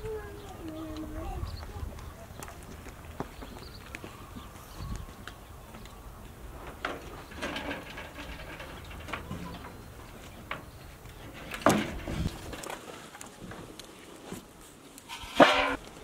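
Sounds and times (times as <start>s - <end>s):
footsteps on dirt: 0.4s - 6.4s.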